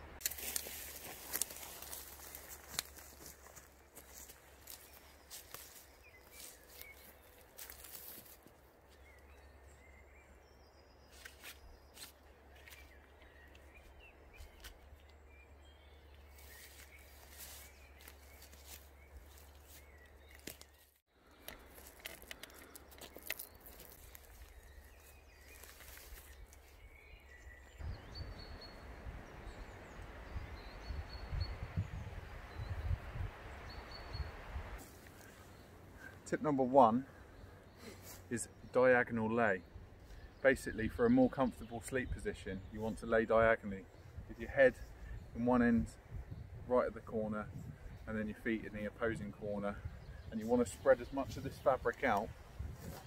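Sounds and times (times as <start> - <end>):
hammock cords rustling and clicking: 0.2 - 8.4, 16.4 - 26.8.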